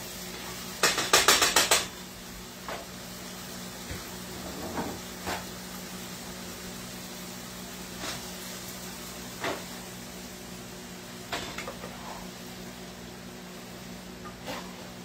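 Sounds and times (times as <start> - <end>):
kitchen hum: 0.0 - 15.0
utensil knocking on frying pan: 0.8 - 1.9.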